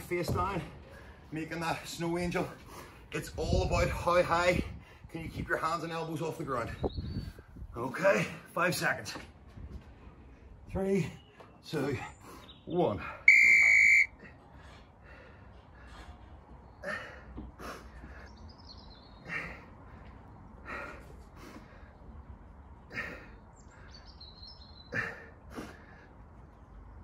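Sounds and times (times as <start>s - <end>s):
bird chirping: 18.2s - 19.6s, 23.4s - 25.0s.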